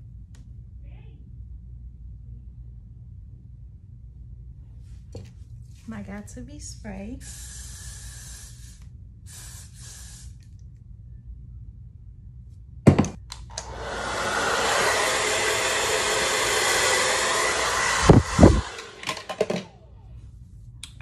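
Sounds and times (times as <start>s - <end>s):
hairspray hissing: 7.2s - 10.4s, 13.6s - 19.6s
knocks: 12.9s - 13.2s
hair dryer running: 12.9s - 20.0s.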